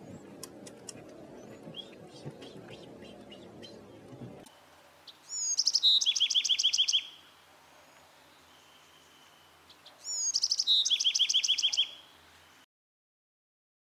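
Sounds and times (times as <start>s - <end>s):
wren singing: 0.0s - 4.5s, 5.1s - 7.2s, 8.4s - 12.1s.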